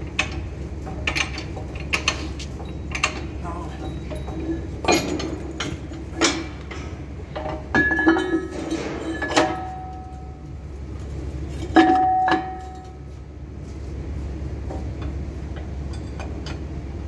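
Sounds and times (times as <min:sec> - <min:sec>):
steady low hum: 0:00.0 - 0:17.0
metallic clinks of steel parts: 0:02.0 - 0:10.5.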